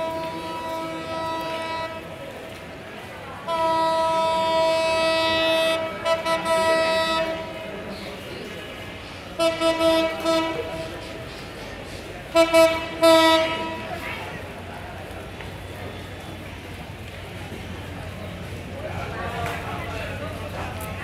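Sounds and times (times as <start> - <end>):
locomotive horn blasts: 0.0 - 2.2, 3.4 - 7.7, 9.4 - 11.2, 12.3 - 14.0.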